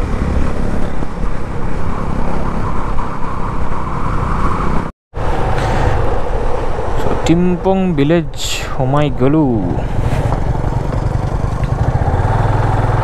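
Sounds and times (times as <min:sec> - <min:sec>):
dense rushing noise: 0:00.0 - 0:12.2
motorcycle engine running: 0:10.0 - 0:13.0.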